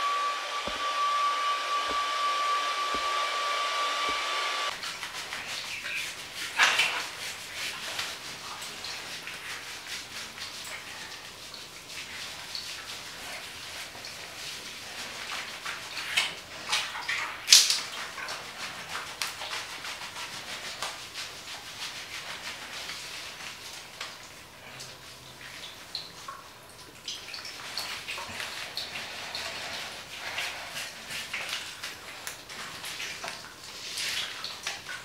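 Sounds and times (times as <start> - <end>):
rushing water with high whine: 0.0 - 4.7
wet rubbing: 0.0 - 10.8, 11.9 - 24.1, 27.1 - 35.0.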